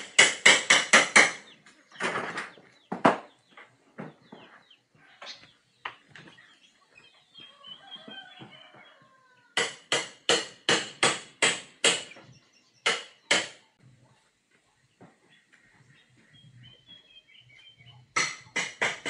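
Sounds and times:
hammer strikes: 0.0s - 1.6s, 9.6s - 12.2s, 12.8s - 13.6s, 18.2s - 19.0s
birds chirping faintly: 1.2s - 9.6s, 11.8s - 18.6s.

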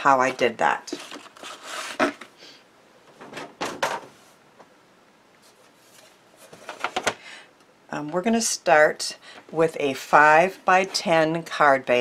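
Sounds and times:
paper rustling and scraping: 0.2s - 2.3s.

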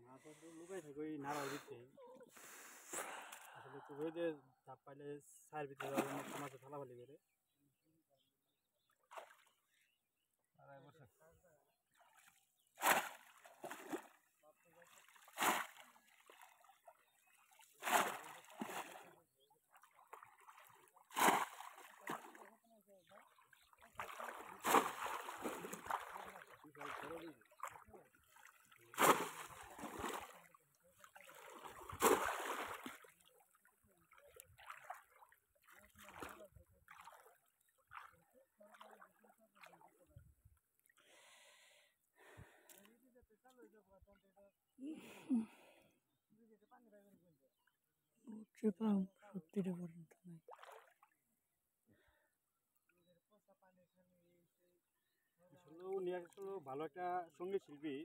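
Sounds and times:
faint breathy puffs: 1.3s - 3.8s
legs sloshing through water: 5.8s - 6.6s, 9.0s - 9.6s, 11.9s - 40.1s, 50.4s - 51.2s
fish trap splashing into water: 12.8s - 14.1s, 15.2s - 15.8s, 17.8s - 19.0s, 21.1s - 22.4s, 24.0s - 26.2s, 28.9s - 30.4s, 31.4s - 33.0s.

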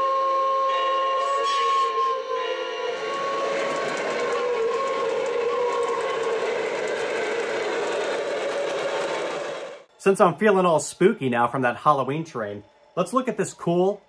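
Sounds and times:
model train whistle: 0.0s - 8.0s
model train rolling on track: 1.3s - 9.9s.

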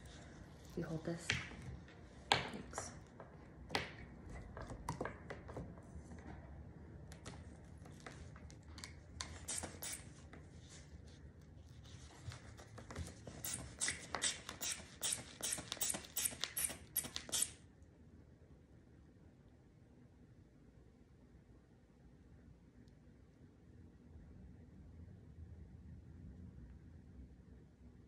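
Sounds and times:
rubber bulb being squeezed: 13.4s - 17.6s.

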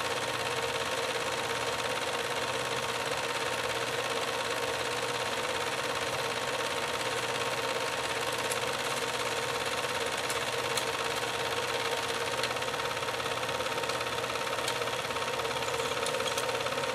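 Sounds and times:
film projector whirring: 0.0s - 16.9s
faint projector clicks: 8.0s - 16.9s.

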